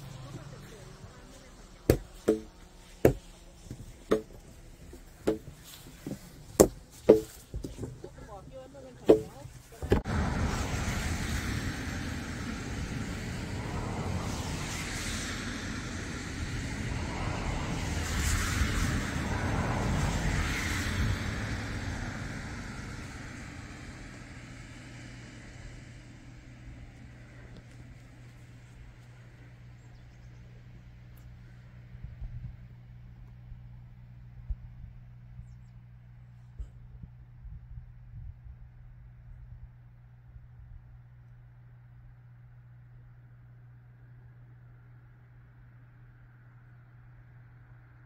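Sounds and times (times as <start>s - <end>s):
vehicle passing: 0.0s - 5.8s, 9.1s - 29.7s
footsteps crunching in deep snow: 0.0s - 8.3s.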